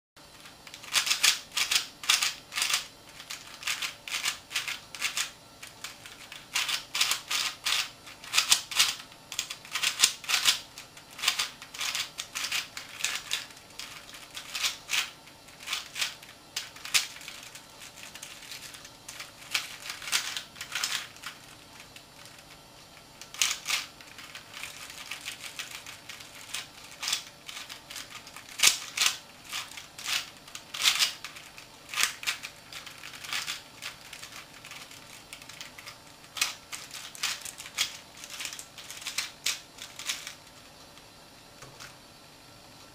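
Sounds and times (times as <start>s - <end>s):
plastic puzzle clicking: 23.2s - 40.4s.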